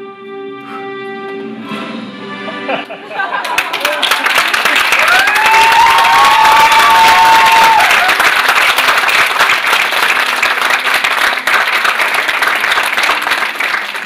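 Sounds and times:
audience applauding: 0:03.3 - 0:14.0.

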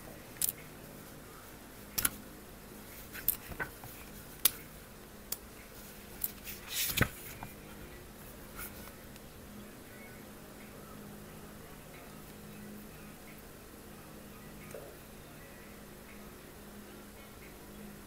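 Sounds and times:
book pages turning: 0:02.9 - 0:04.6, 0:05.7 - 0:09.0.

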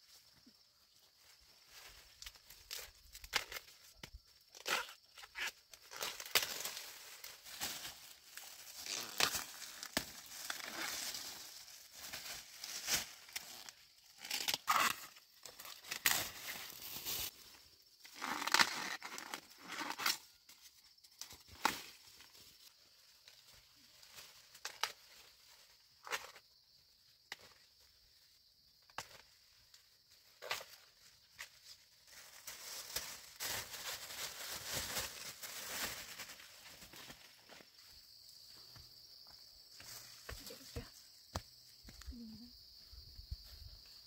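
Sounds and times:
corn leaves rustling and tearing: 0:01.6 - 0:17.4, 0:18.0 - 0:20.6, 0:23.2 - 0:26.4, 0:30.4 - 0:37.5.

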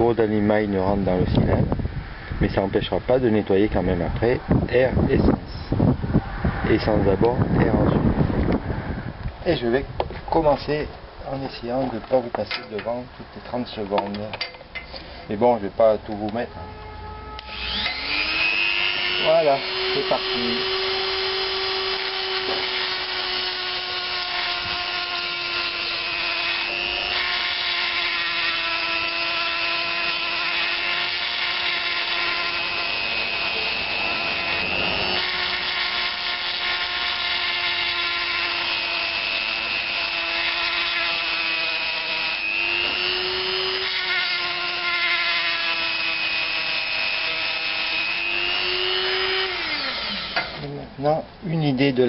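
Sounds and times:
rotary tool grinding metal: 0:17.4 - 0:50.7.

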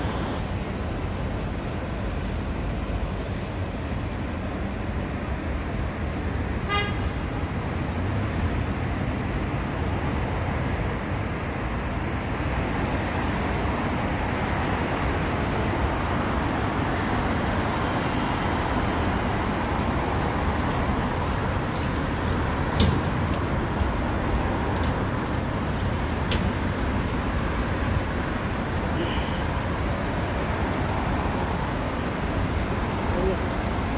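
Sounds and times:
cars passing on busy road: 0:00.0 - 0:33.9
car horn toot: 0:06.7 - 0:07.0.

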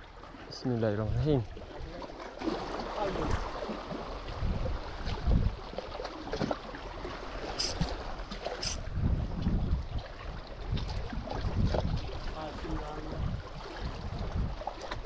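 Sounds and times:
water lapping against rocks: 0:00.0 - 0:15.0
wind buffeting microphone: 0:04.2 - 0:05.8, 0:07.6 - 0:15.0
brief high hisses: 0:07.6 - 0:07.8.

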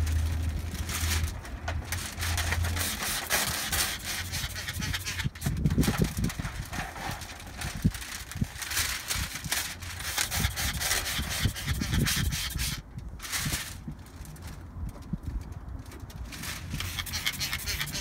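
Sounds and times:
scratchy rubbing on glass: 0:02.3 - 0:05.6, 0:09.6 - 0:12.8, 0:16.4 - 0:18.0.

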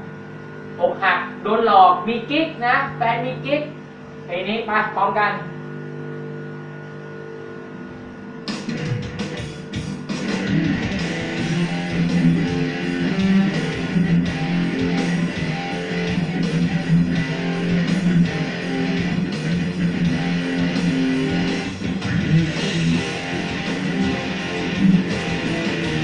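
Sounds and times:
electric guitar strumming chords: 0:07.7 - 0:26.0.

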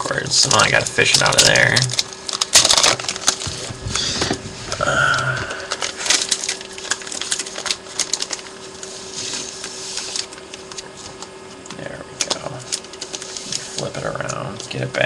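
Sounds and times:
plastic sleeve rustling: 0:00.5 - 0:11.4, 0:12.2 - 0:14.9
person humming: 0:03.9 - 0:05.7.

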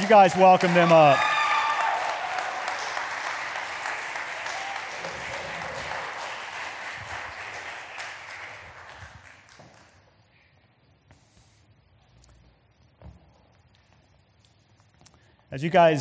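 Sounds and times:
congregation applauding: 0:00.0 - 0:09.7.

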